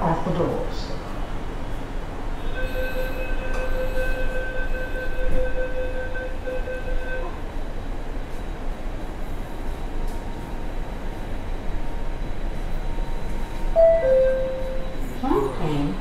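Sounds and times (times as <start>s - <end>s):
metro train rumbling: 0.0s - 16.0s
electronic warning tone: 13.1s - 15.9s.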